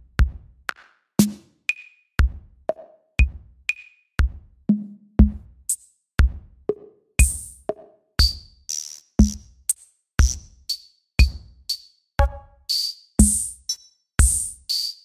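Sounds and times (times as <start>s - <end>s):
electronic music with drum machine: 7.2s - 15.0s.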